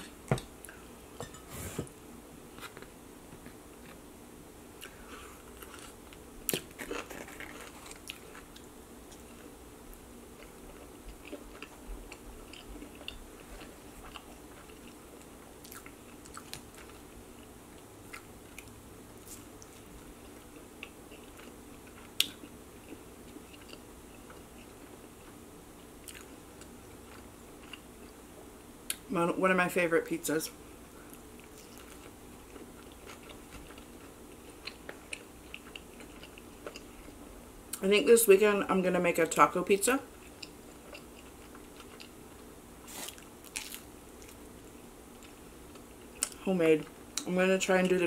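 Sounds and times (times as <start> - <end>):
person chewing food: 4.8 - 9.5, 10.4 - 25.4, 26.0 - 28.2, 31.1 - 37.2, 40.1 - 46.4.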